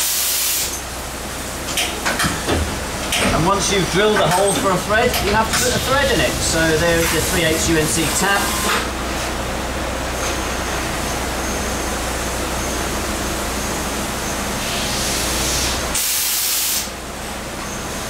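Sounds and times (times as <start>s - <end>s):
coolant spraying hiss: 0.0s - 0.8s, 4.6s - 8.9s, 14.6s - 17.0s
low machine hum: 0.8s - 15.1s.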